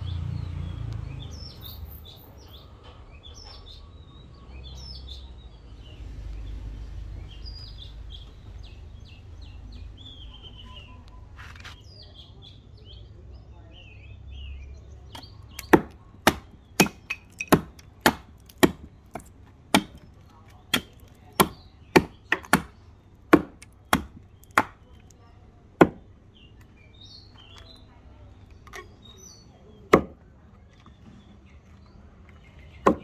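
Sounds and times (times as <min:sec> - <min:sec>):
birds chirping faintly: 0:00.0 - 0:33.0
hatchet chopping wood: 0:15.2 - 0:25.1, 0:25.8 - 0:26.1, 0:29.9 - 0:30.2.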